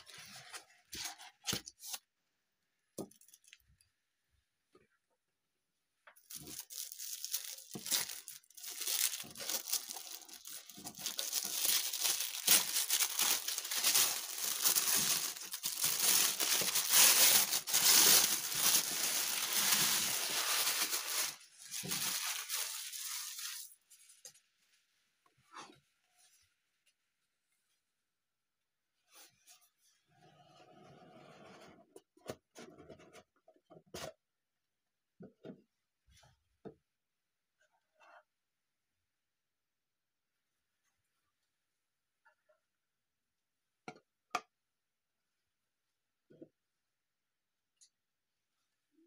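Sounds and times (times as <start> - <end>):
wrapping paper tearing and rustling: 6.3 - 23.8.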